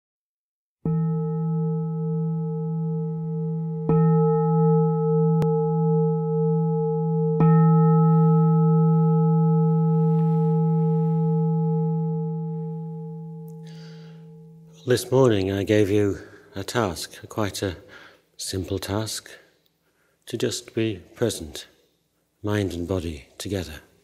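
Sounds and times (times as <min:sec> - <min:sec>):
meditation bowl bell ringing: 0:00.8 - 0:14.9.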